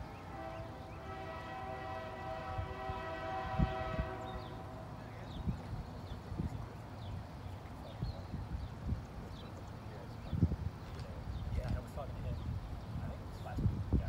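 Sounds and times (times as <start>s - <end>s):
train horn long chord: 0.0s - 5.2s.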